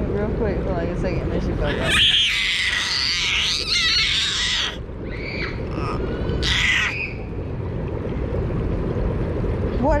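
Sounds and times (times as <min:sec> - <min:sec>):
low rush of water: 0:00.0 - 0:10.0
toddler squealing: 0:01.7 - 0:07.1.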